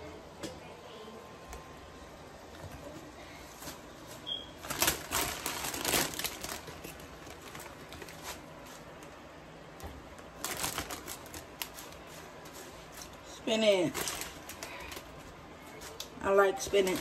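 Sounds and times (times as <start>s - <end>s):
plastic bag crinkling: 4.6s - 9.0s, 10.2s - 17.0s.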